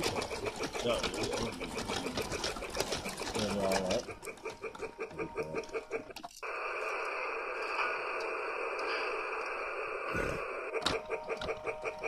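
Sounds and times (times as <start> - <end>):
toy train chugging: 0.0 - 12.0
steam hiss: 6.4 - 11.6.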